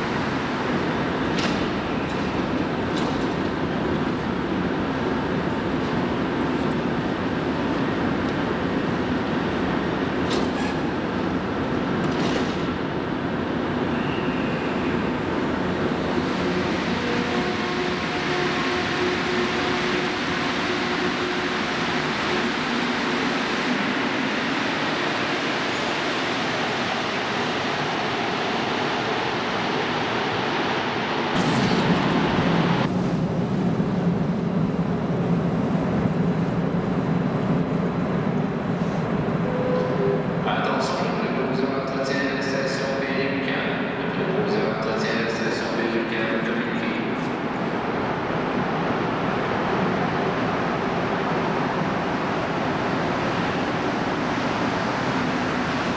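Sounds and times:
metro train rumble and hum: 0.0s - 55.9s
train doors closing clacks: 1.2s - 4.2s, 10.2s - 11.0s, 11.9s - 12.8s.

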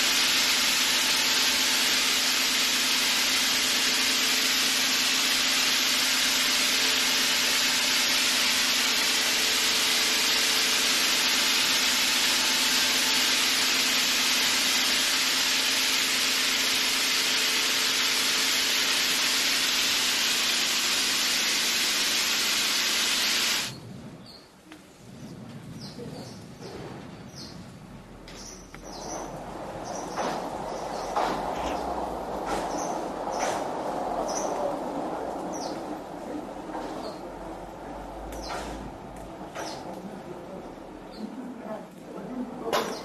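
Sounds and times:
loud steady spray hiss: 0.0s - 23.8s, 29.9s - 38.5s.

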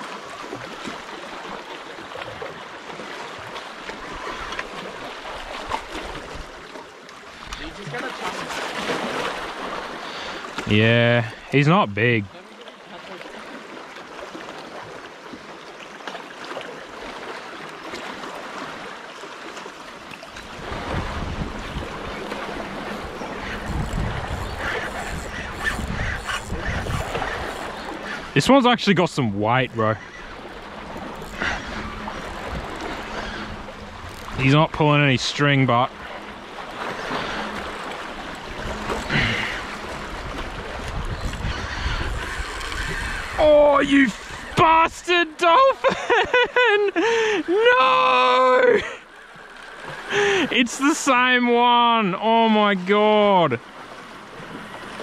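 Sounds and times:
sea water lapping and splashing: 0.0s - 55.0s
wind noise: 20.6s - 27.6s, 38.6s - 43.5s.

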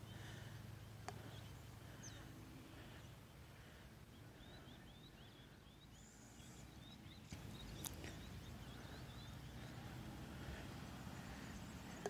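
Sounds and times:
low steady rumble: 0.0s - 12.0s
small bird chirping: 4.1s - 10.0s.

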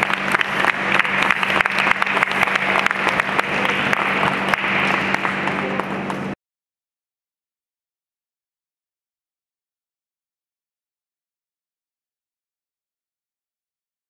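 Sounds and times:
crowd applauding: 0.0s - 6.4s
steady low hum: 0.0s - 6.4s.

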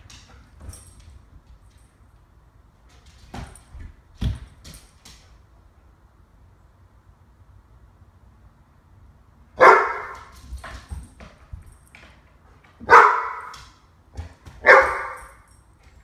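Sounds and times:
dog barking: 9.6s - 10.3s, 12.8s - 13.6s, 14.6s - 15.4s.

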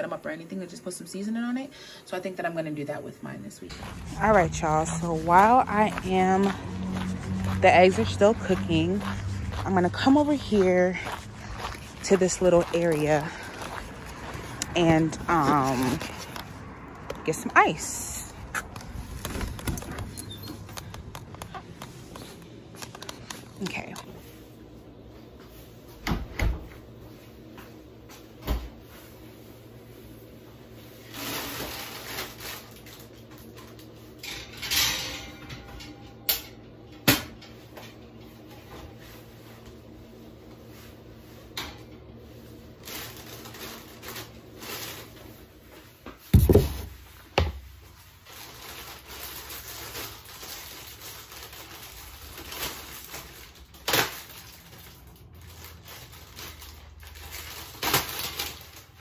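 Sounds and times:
plastic bag rustling: 3.7s - 24.8s, 30.8s - 34.2s, 42.2s - 45.6s, 46.4s - 59.0s
heavy thump: 46.4s - 47.0s.

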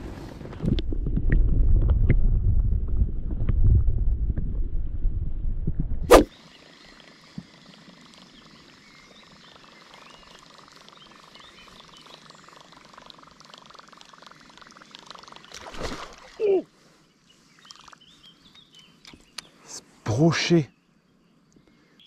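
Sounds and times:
wind noise on microphone: 0.0s - 6.2s
faint outdoor background: 6.0s - 22.0s
thin high wavering chirps: 8.0s - 15.9s.

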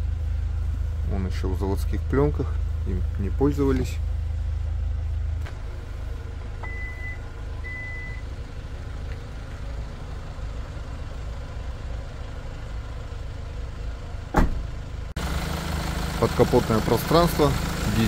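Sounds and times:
tailgate latching thump: 14.3s - 14.7s.

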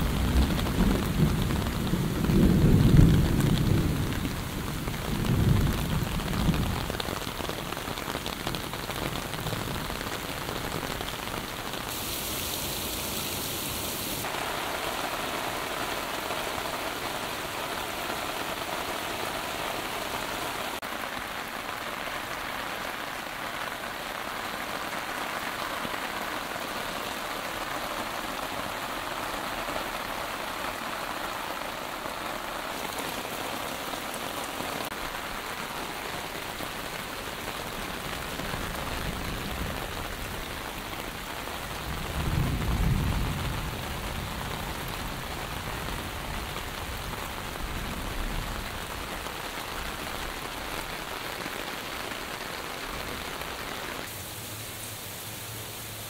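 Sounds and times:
low rumble of thunder: 0.0s - 7.0s, 41.8s - 49.0s
heavy rain on leaves: 0.0s - 56.0s
muddy water running: 11.2s - 22.2s.

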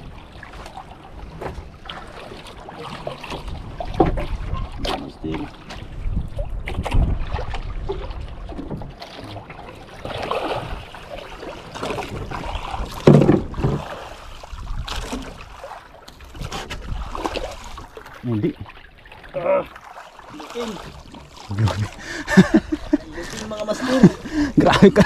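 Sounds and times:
water sloshing and splashing: 0.0s - 25.0s
wind on microphone: 3.4s - 8.8s, 12.0s - 15.6s
knocks and rustles: 13.0s - 13.8s.

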